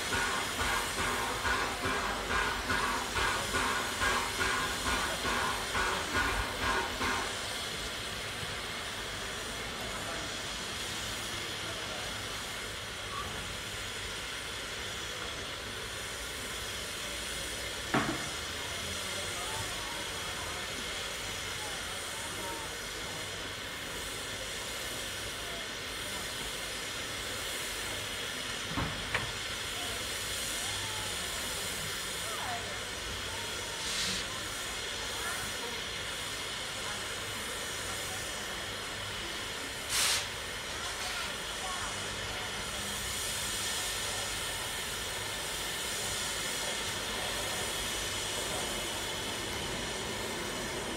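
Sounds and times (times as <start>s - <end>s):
steam locomotive letting off steam: 0.0s - 50.9s.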